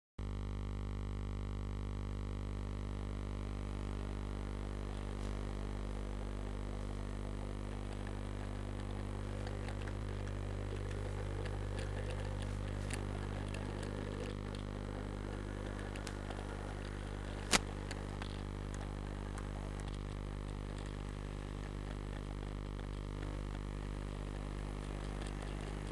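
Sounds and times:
low electrical hum: 0.2s - 25.9s
clicks: 3.4s - 25.9s.

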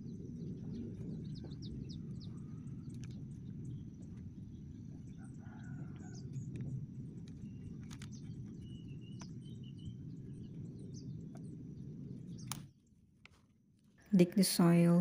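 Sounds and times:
low rumble: 0.0s - 12.6s
small birds chirping: 0.0s - 13.4s
faint rooster crowing: 5.0s - 6.7s
light clicks: 6.0s - 9.4s.

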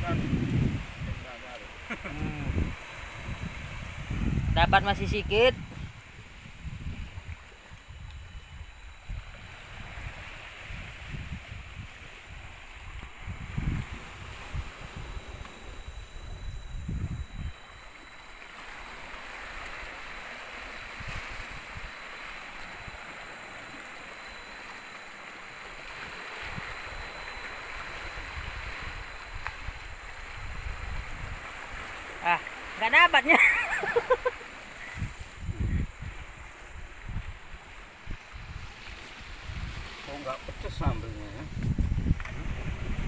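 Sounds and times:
gusty wind on microphone: 0.0s - 17.9s, 25.8s - 32.1s, 34.9s - 43.0s
water lapping and flowing: 0.0s - 43.0s
hiss of moving water: 33.6s - 42.9s.

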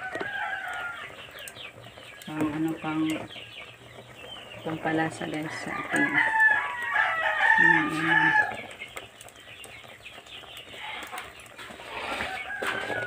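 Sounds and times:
rooster crowing: 0.0s - 1.2s, 5.6s - 8.6s, 11.9s - 13.0s.

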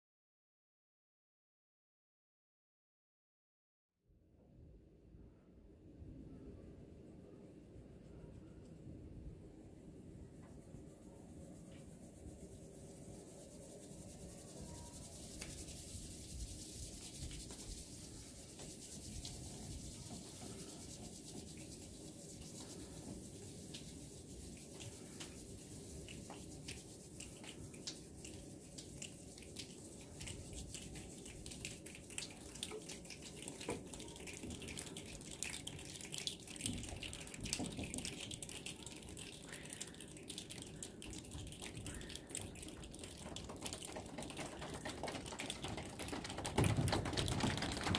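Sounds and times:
palms rubbing together: 9.6s - 47.9s.

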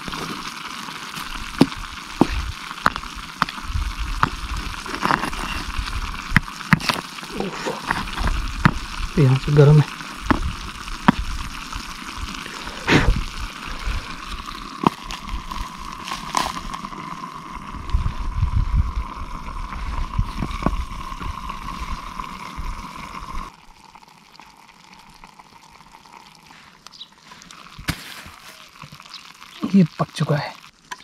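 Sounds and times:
flat stones knocking: 0.0s - 13.3s, 14.1s - 17.1s, 20.1s - 21.5s
stew bubbling and sizzling: 0.0s - 31.0s.

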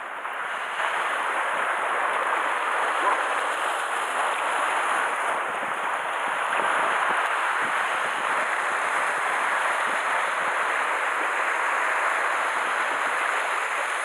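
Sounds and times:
sea surf washing against rocks: 0.0s - 14.0s.

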